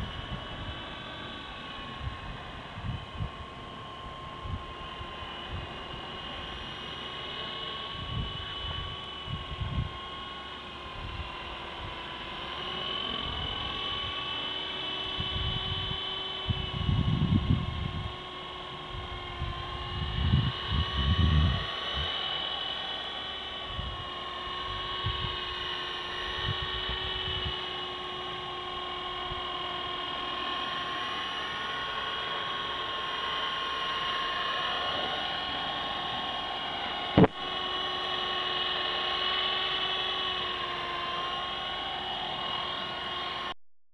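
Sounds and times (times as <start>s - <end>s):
rc helicopter motor whining: 0.0s - 43.6s.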